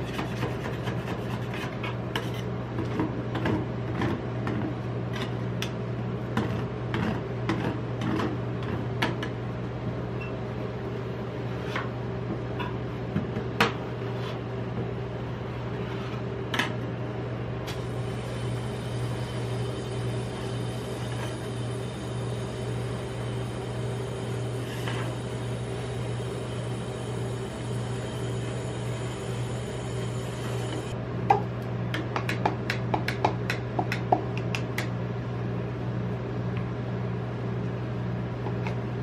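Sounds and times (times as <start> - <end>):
machine humming: 17.7 - 31.0.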